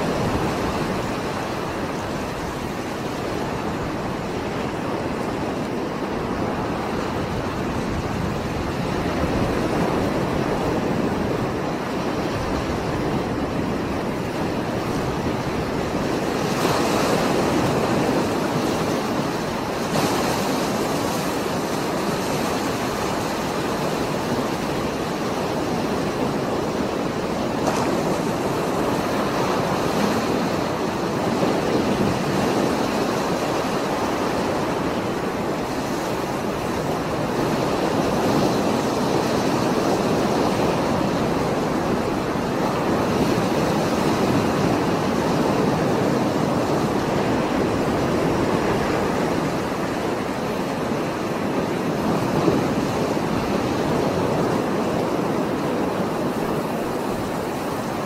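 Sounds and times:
heavy surf waves breaking: 0.0s - 58.0s.

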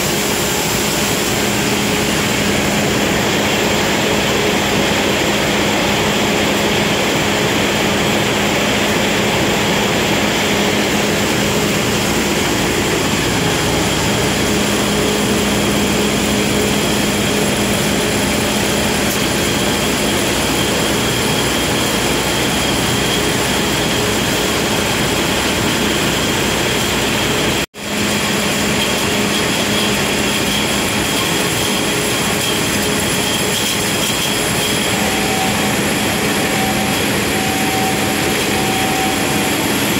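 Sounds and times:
production line machinery whirring: 0.0s - 39.9s
held machine tones: 28.6s - 39.9s.

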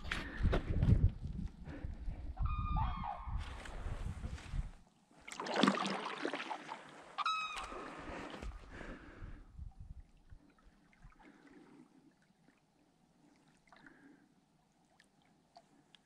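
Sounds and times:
paddle splashing water: 5.2s - 9.0s, 10.1s - 15.9s
wild birds honking: 7.2s - 8.0s.

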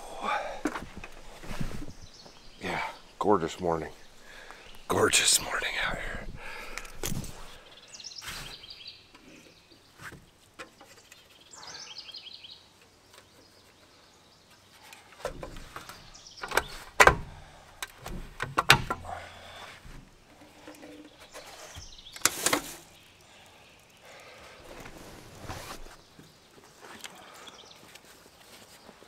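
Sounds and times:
camp gear knocking and clattering: 0.0s - 2.9s, 15.2s - 22.8s
bird singing: 0.0s - 25.0s, 26.0s - 28.0s.

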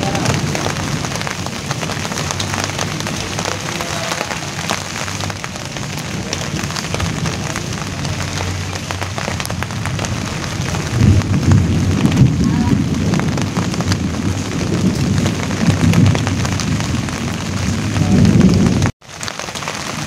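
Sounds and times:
rain on a leaf: 0.0s - 20.0s.

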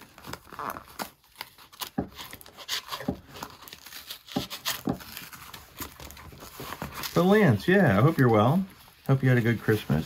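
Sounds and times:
knife slitting tape and paper: 0.0s - 7.2s
envelope crinkling: 0.0s - 10.0s.

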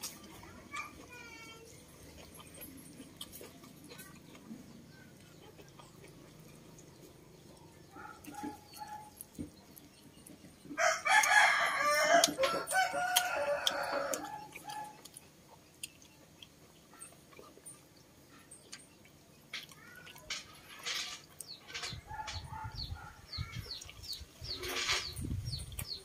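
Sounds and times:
rooster crowing: 10.8s - 14.8s.

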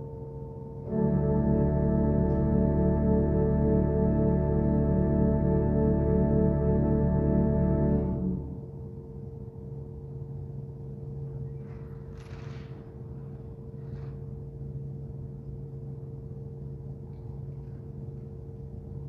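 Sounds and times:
two-tone low hum: 0.0s - 11.6s.

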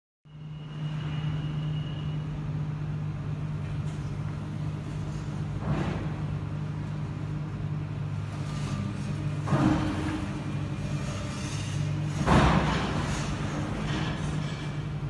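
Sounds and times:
faint high whine: 0.3s - 4.0s.

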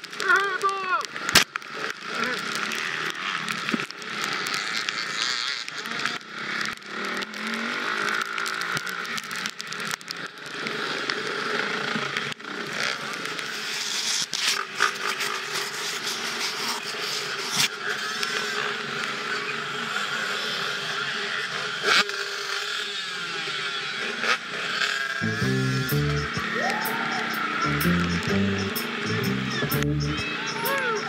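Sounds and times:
dirt bike engine: 1.1s - 9.4s, 25.2s - 31.0s
dense rush of noise: 25.2s - 30.2s
music: 25.2s - 30.9s.

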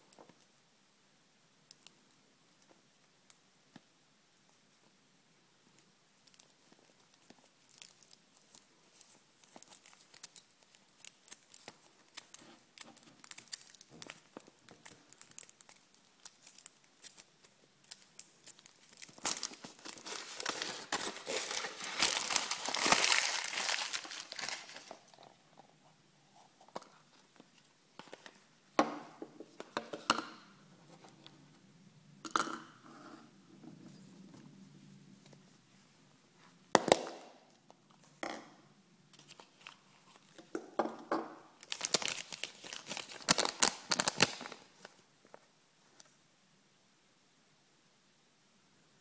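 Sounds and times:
foil wrapper crinkling: 6.2s - 25.2s, 41.6s - 44.9s
chocolate shell cracking: 7.6s - 19.7s.

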